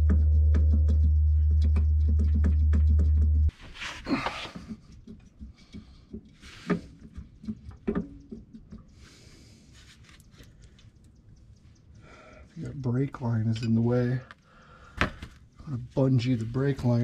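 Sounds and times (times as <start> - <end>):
low hum: 0.0 - 3.5
clothing rustling: 3.5 - 4.8.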